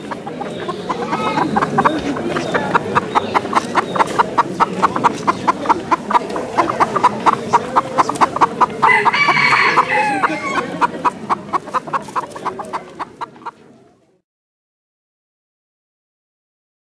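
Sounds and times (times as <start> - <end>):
chickens clucking: 0.0 - 13.9
rooster crowing: 8.9 - 10.7.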